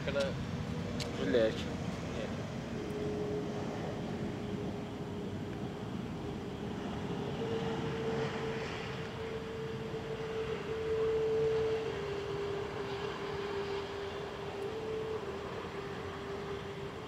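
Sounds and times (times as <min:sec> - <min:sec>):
jet turbine whine: 0:00.0 - 0:17.0.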